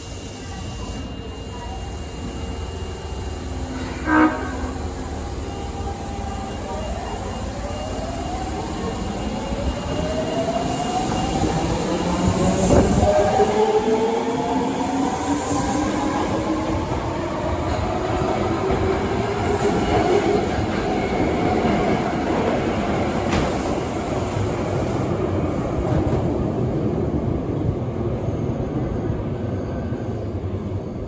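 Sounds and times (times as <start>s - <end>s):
train wheels rumbling and clattering: 8.6s - 30.8s.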